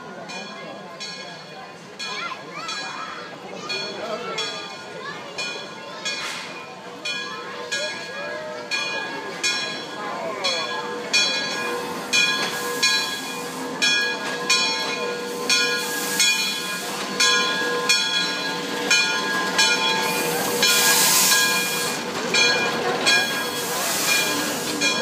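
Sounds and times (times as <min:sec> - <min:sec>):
locomotive bell ringing: 0:00.0 - 0:25.0
steam locomotive rolling: 0:00.0 - 0:25.0
steam hissing: 0:10.6 - 0:25.0.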